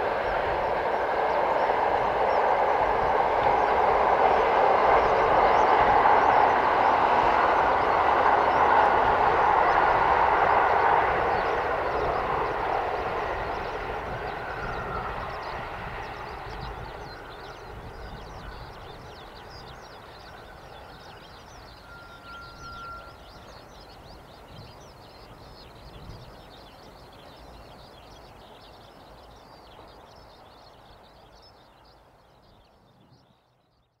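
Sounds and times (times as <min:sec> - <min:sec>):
train rumble: 0:00.0 - 0:33.0
small birds chirping: 0:00.0 - 0:34.0
faint steady whistle: 0:03.4 - 0:24.1.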